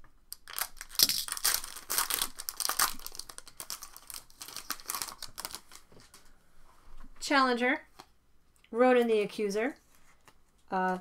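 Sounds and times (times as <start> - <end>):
foil wrapper crinkling: 0.3 - 6.1.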